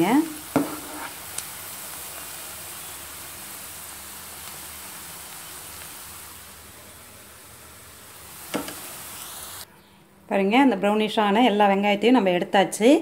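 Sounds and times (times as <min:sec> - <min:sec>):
oil sizzling with onions: 0:00.0 - 0:09.7.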